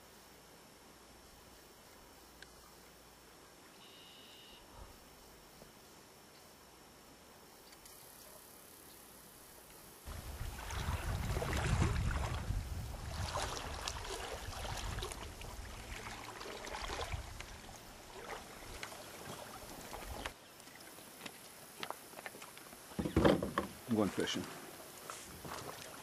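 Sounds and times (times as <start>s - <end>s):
faint outdoor hiss: 0.0s - 26.0s
wind buffeting microphone: 10.1s - 17.8s.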